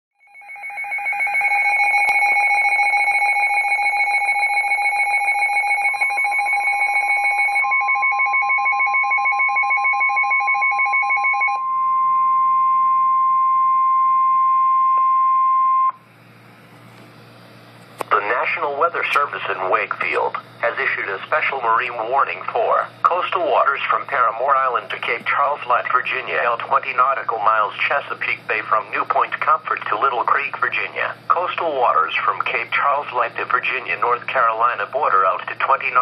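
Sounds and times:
fast-pulsing electronic alarm beep: 0.2 - 16.0
steady single alarm tone: 0.2 - 16.4
faint radio hiss: 16.0 - 36.0.

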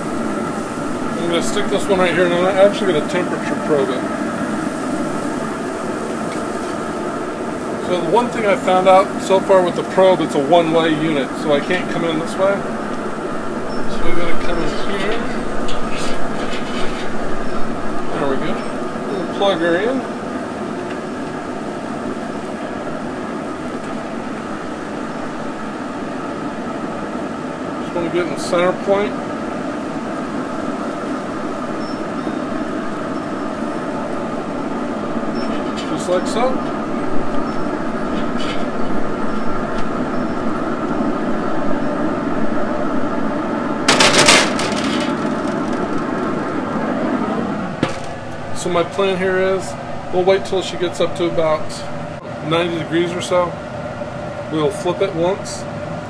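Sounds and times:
faint hum: 0.0 - 56.0
grill fan and fire rushing: 0.0 - 56.0
short clatter: 43.9 - 46.5.

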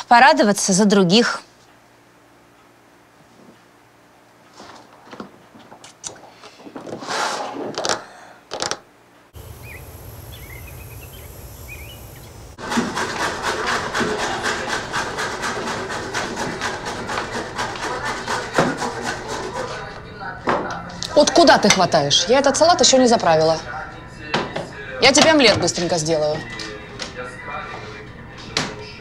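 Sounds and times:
small birds chirping: 9.4 - 12.6.

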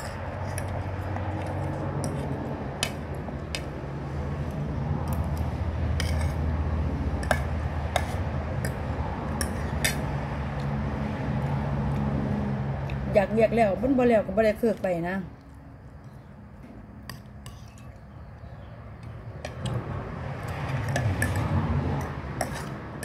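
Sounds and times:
cutlery scraping a ceramic plate: 0.0 - 0.8, 6.0 - 6.5, 7.2 - 8.8, 9.4 - 10.1, 22.0 - 22.8.

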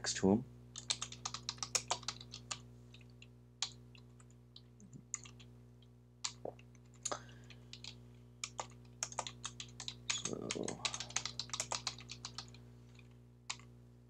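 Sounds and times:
faint steady low hum: 0.0 - 14.0
computer keyboard keystrokes: 0.8 - 2.6, 3.6 - 5.5, 6.3 - 12.6.

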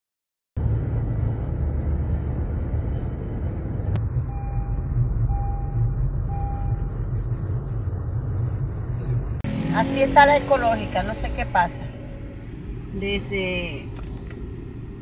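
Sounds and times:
traffic rumble inside car: 0.6 - 15.0
electronic beeps: 4.2 - 7.1.

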